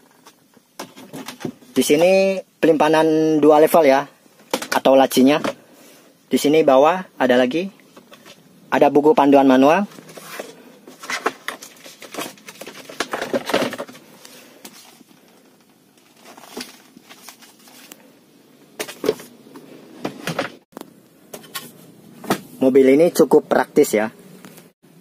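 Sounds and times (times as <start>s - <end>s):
paper booklets rustling: 9.8s - 18.1s.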